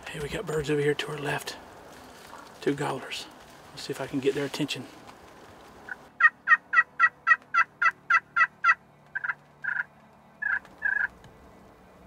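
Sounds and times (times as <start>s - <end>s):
turkey call yelps: 5.9s - 11.1s.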